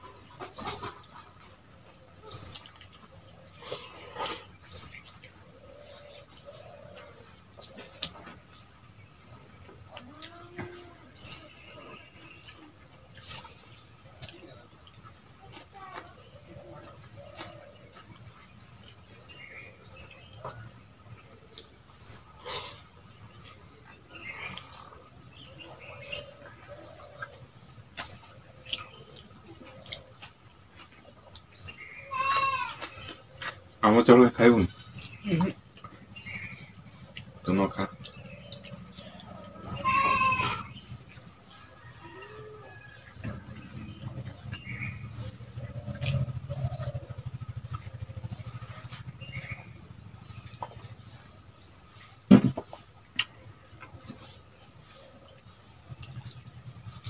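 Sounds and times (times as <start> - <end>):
small birds chirping: 0.0 - 57.0
low hum: 33.1 - 57.0.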